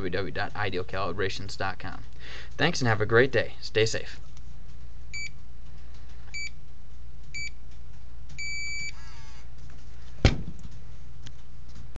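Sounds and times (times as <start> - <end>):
gas detector beeping: 5.1 - 5.4, 6.3 - 6.6, 7.3 - 7.6, 8.4 - 9.0.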